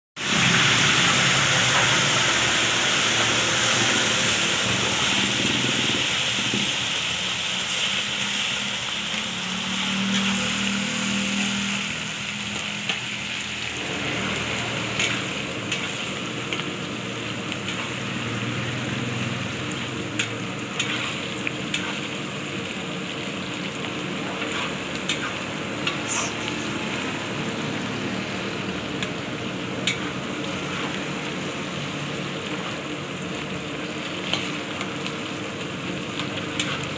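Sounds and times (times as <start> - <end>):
cabbage frying in hot oil: 0.2 - 36.9
metal spatula scraping wok: 9.6 - 11.9, 12.5 - 18.6, 19.7 - 22.2, 24.2 - 28.1, 29.8 - 31.7.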